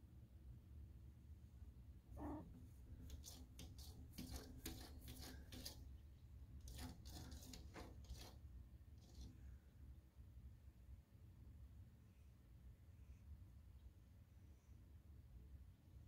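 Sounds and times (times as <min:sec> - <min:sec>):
cat paw scratching on glass: 0:02.2 - 0:09.5.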